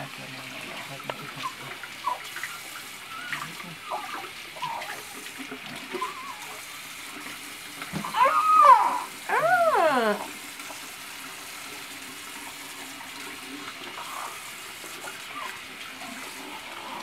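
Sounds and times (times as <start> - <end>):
steady hiss like running water: 0.0 - 17.0
baby wailing cry: 8.0 - 10.3
baby fussing with squeaks: 8.1 - 10.2.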